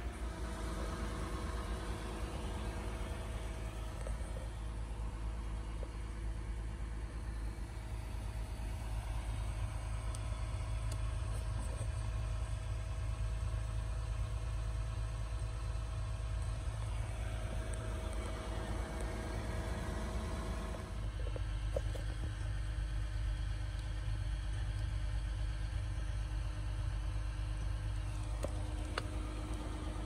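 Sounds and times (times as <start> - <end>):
faint constant hum: 0.0 - 30.0.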